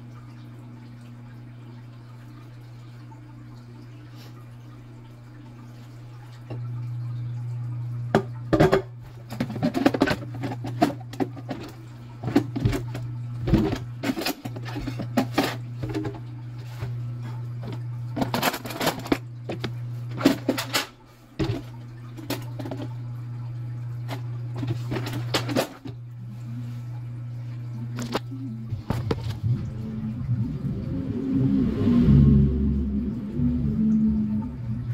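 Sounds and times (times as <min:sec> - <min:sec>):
low machine hum: 0:00.0 - 0:34.9
kitchen items clattering: 0:08.2 - 0:17.0, 0:17.6 - 0:23.0, 0:24.0 - 0:26.0.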